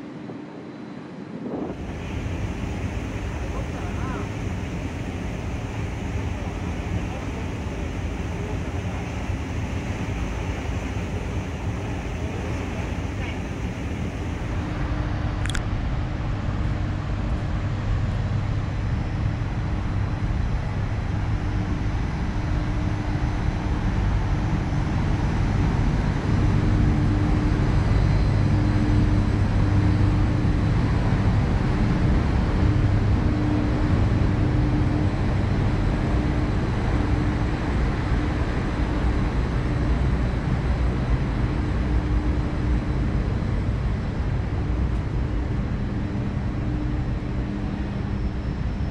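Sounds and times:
thin steady hum: 0.0 - 48.9
wind buffeting microphone: 0.0 - 48.9.

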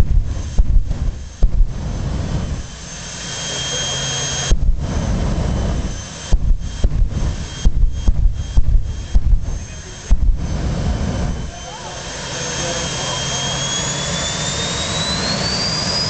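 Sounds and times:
low thumps on the microphone: 0.0 - 2.6, 4.5 - 11.4
jet turbine engine roaring: 0.0 - 16.0.

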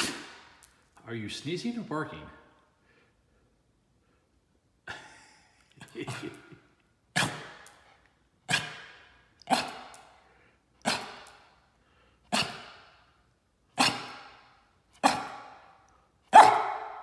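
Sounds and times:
small dog barking: 15.0 - 15.5, 16.3 - 17.0.

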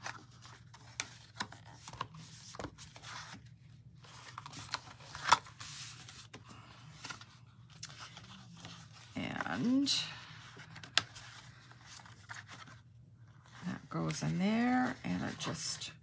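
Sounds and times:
paper rustling and crinkling: 0.0 - 15.8.

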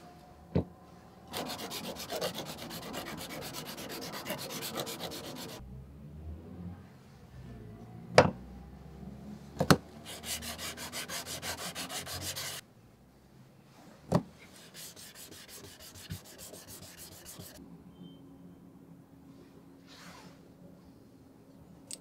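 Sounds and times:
metal rubbing on sandpaper: 1.3 - 5.6, 10.0 - 12.6, 14.6 - 17.6.

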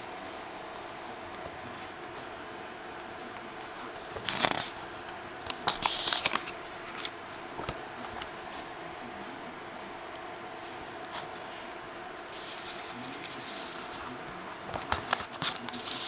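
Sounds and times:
paper pages turning: 3.9 - 8.9, 12.4 - 16.0.

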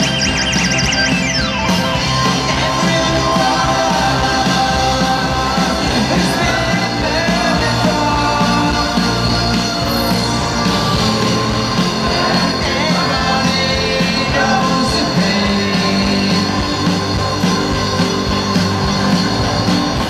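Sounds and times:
live rock band playing: 0.0 - 20.0
male lead vocal: 1.9 - 20.0.

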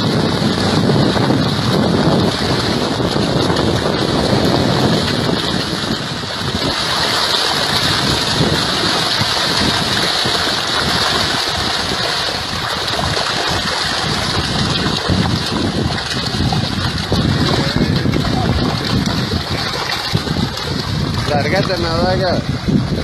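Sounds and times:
river water splashing: 0.0 - 22.7
wind buffeting microphone: 0.0 - 23.0.

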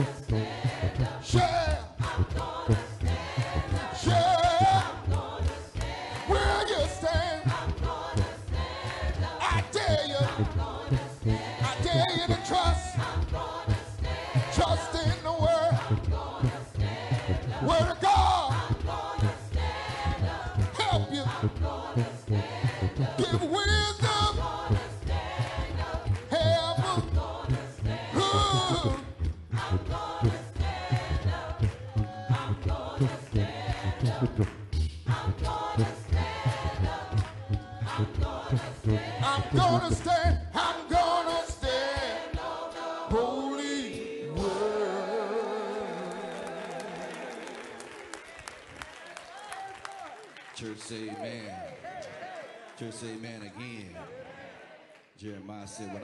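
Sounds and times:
low rhythmic pulse: 0.0 - 41.0
choir singing a cappella: 0.0 - 47.1.

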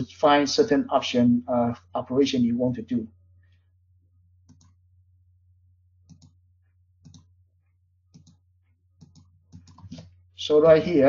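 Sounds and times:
computer mouse clicks: 4.4 - 4.8, 6.0 - 6.4, 7.0 - 7.3, 8.1 - 8.4, 9.0 - 10.2.

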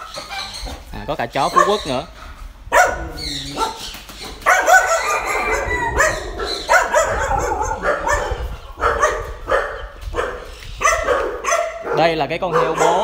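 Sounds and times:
dogs barking and yelping: 0.0 - 13.0
rooster crowing: 4.7 - 7.8.

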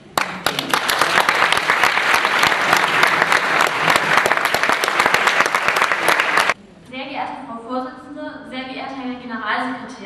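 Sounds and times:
audience applauding: 0.2 - 6.6.

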